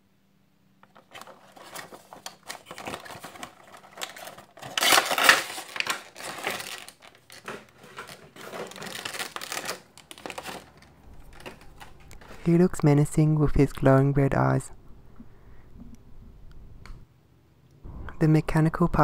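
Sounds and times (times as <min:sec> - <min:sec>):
cardboard and plastic crinkling: 0:00.8 - 0:12.9.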